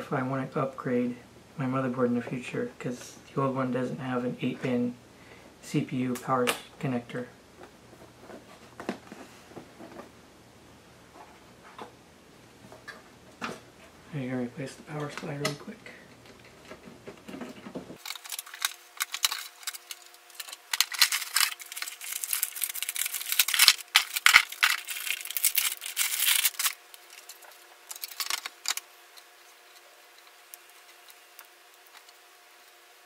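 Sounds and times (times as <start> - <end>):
hands handling cables and connectors: 16.2 - 32.7.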